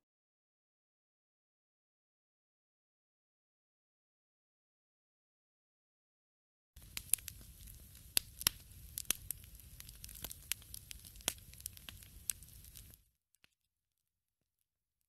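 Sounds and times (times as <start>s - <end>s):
wood fire crackling: 6.8s - 13.1s.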